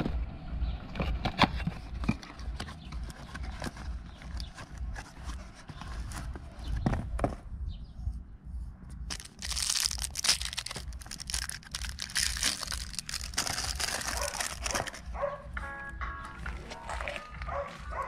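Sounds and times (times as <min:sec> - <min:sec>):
low steady rumble: 0:00.0 - 0:17.5
rustling crinkling handling: 0:02.0 - 0:06.9, 0:09.1 - 0:15.3.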